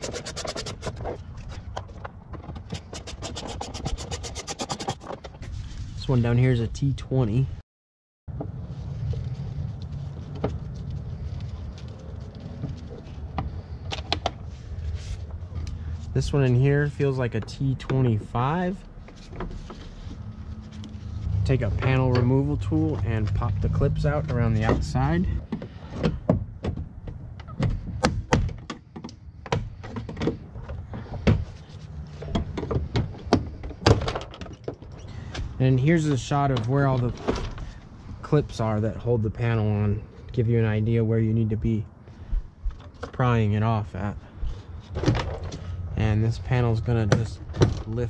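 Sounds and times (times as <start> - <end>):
steady low rumble: 8.3 - 25.5.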